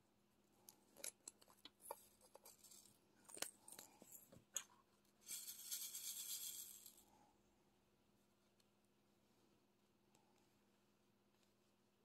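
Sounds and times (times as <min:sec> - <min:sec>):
plastic beads rattling in a tray: 0:05.2 - 0:07.0.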